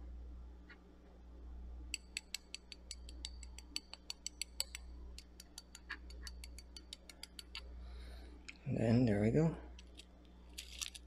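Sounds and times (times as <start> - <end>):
spoon tapping sugar crust: 1.9 - 7.6.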